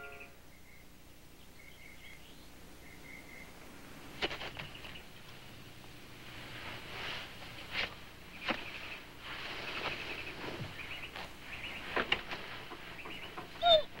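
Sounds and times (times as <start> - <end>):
faint high chirping: 0.0 - 3.6, 12.8 - 14.0.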